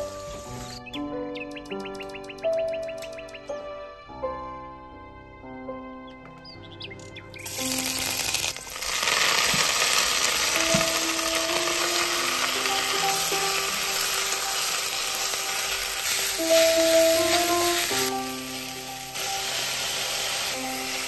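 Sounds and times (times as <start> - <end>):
hot oil sizzling: 0.0 - 0.9, 7.4 - 21.0.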